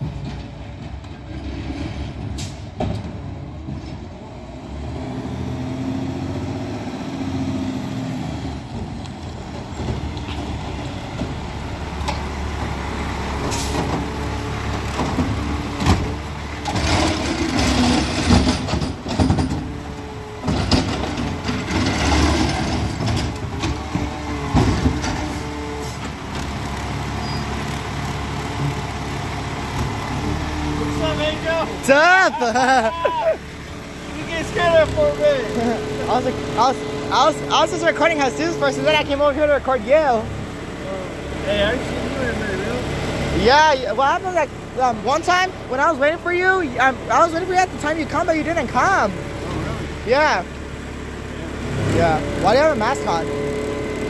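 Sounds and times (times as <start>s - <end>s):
garbage truck engine running: 0.0s - 54.0s
air brakes hissing: 13.5s - 13.9s
sharp metal knocks and clanks: 16.7s - 19.8s.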